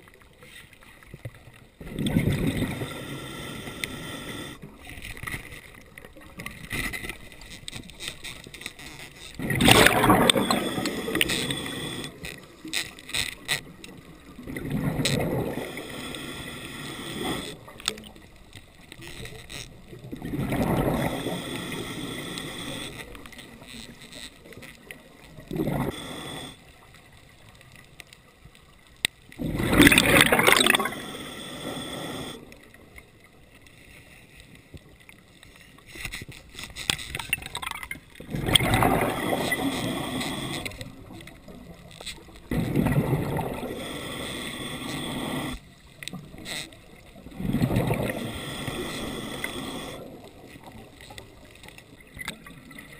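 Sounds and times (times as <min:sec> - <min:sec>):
diver exhaling bubbles underwater: 0:09.4 - 0:12.0, 0:14.4 - 0:15.9, 0:20.2 - 0:21.9, 0:25.4 - 0:26.6, 0:29.4 - 0:32.4, 0:37.4 - 0:40.7, 0:42.5 - 0:45.5, 0:47.2 - 0:50.2.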